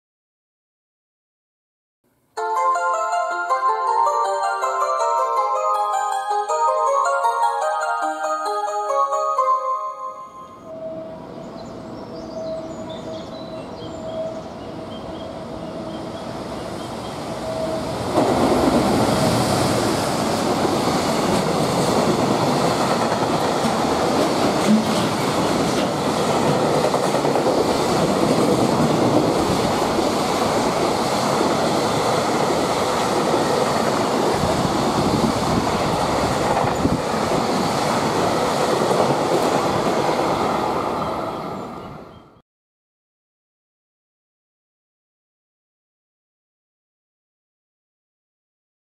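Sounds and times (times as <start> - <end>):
train wheels rumbling on rail: 15.0 - 41.8
clickety-clack over rail joints: 18.0 - 19.4, 20.2 - 40.5.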